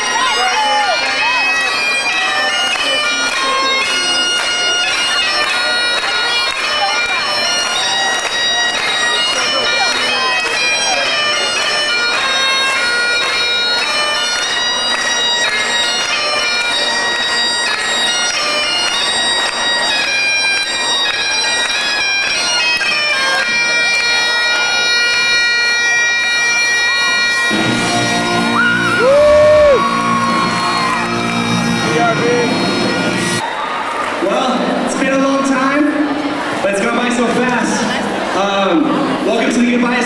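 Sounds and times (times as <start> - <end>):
crowd noise with whooping: 0.0 - 2.0, 27.0 - 34.4
bagpipe playing a tune: 0.0 - 33.4.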